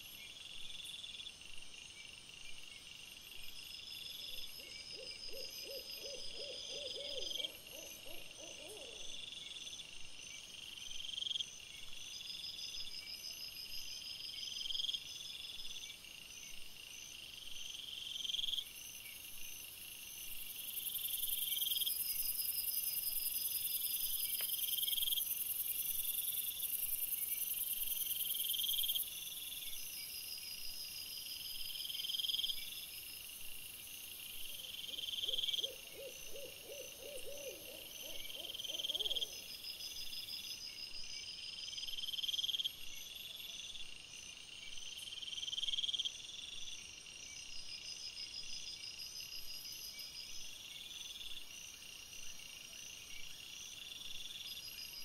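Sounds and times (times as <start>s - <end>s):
low quavering hoot: 5.0s - 9.1s, 34.9s - 39.4s.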